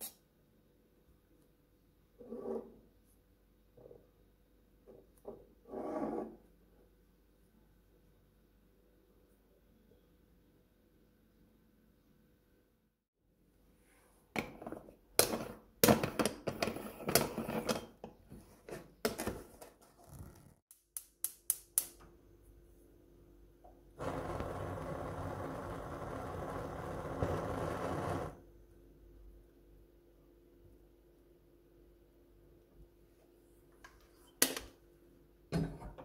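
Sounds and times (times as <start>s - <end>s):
gas burner hissing: 24.0s - 28.4s.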